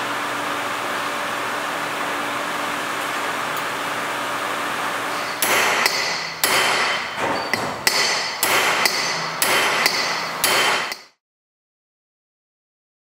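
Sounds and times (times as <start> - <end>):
shop noise: 2.2 - 11.2
hammer tapping metal tool: 5.1 - 11.2.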